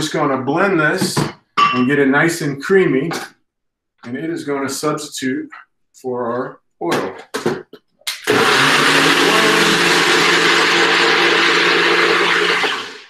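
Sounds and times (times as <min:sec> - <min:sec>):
blender running: 0:08.1 - 0:13.0.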